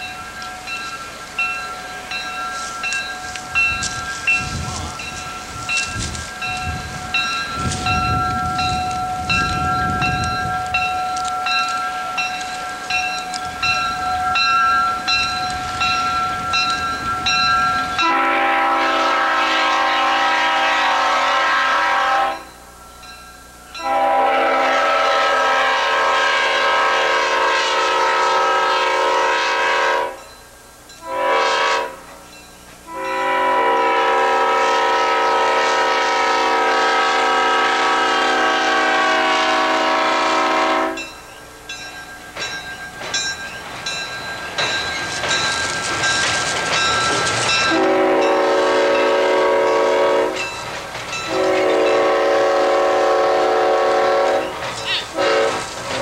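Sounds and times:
locomotive low rumble: 0:00.0 - 0:19.3, 0:39.0 - 0:56.0
locomotive bell ringing: 0:00.0 - 0:26.7, 0:29.2 - 0:56.0
air horn blasts: 0:18.0 - 0:22.5, 0:23.8 - 0:30.2, 0:31.0 - 0:32.1, 0:32.9 - 0:41.0, 0:47.7 - 0:50.4, 0:51.3 - 0:56.0.

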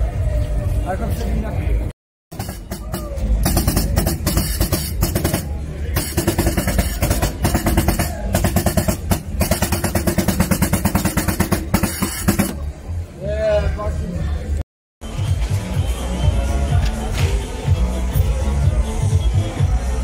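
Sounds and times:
music with fast drum beat: 0:02.3 - 0:12.6.

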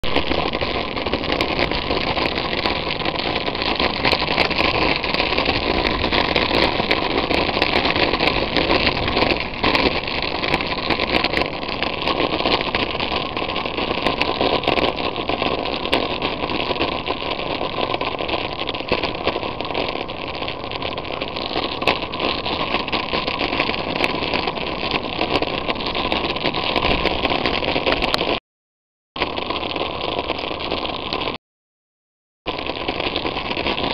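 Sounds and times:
wind on microphone: 0:00.0 - 0:13.2.

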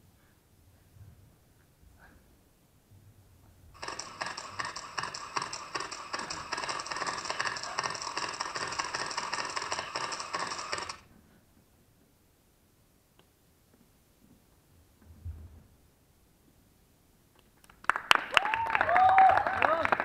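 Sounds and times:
rapid dense clattering: 0:03.8 - 0:11.0.

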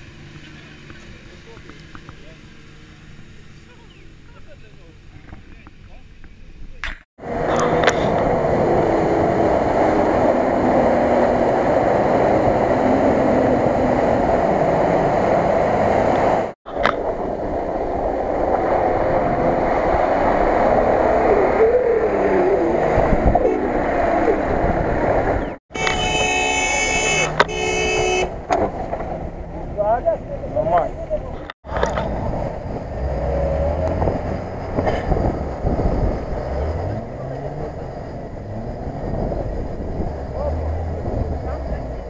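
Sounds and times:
off-road vehicle engine under load: 0:00.0 - 0:42.0
wind and tyre noise: 0:00.0 - 0:42.0
shrill high-pitched tone: 0:25.7 - 0:28.3.

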